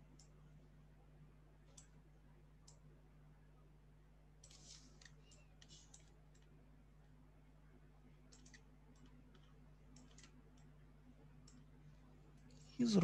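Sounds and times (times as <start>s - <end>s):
low steady hum: 0.0s - 13.0s
computer mouse clicks: 0.1s - 0.4s, 1.7s - 2.0s, 2.6s - 2.9s, 4.4s - 6.5s, 8.3s - 10.8s, 11.4s - 11.7s.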